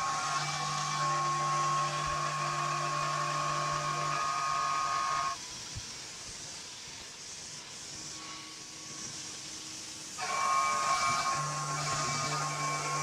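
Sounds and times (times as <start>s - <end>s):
coolant mist hiss: 0.0s - 13.0s
milling machine cutting whine: 0.0s - 13.0s.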